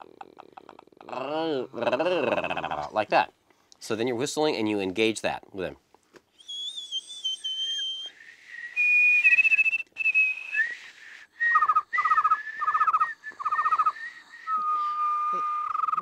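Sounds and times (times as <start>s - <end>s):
steady high whistle: 6.4s - 16.0s
whistled cricket chirps: 6.4s - 16.0s.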